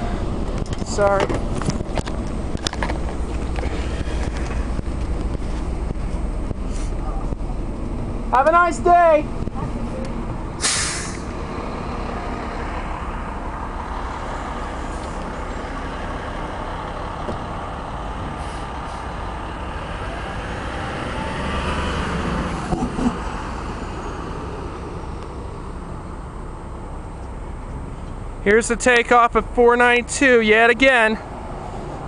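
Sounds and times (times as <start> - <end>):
diesel bus engine idling: 0.0 - 32.0
compressed air hiss: 10.6 - 11.3.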